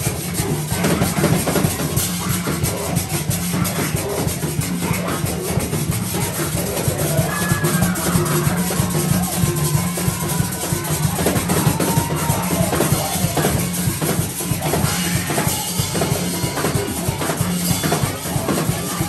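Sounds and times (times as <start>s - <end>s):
drums beating fast rhythm: 0.0s - 19.0s.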